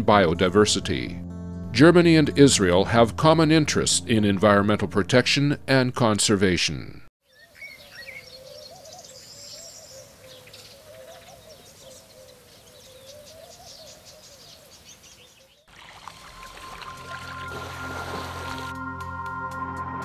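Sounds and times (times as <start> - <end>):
music: 0.0 - 6.4, 16.1 - 20.0
low wavering bird call: 7.4 - 14.4.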